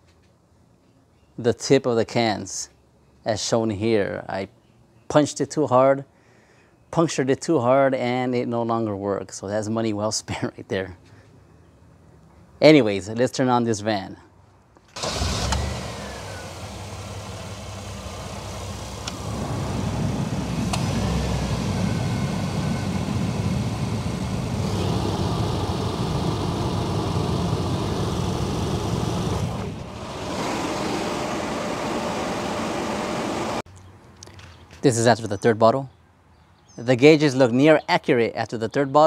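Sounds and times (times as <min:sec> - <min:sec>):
engine and fan hum: 0:08.0 - 0:34.9.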